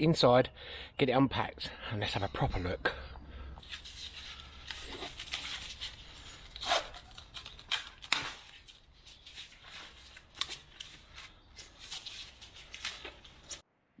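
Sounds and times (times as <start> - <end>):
plastic packaging rustling: 3.6 - 13.6.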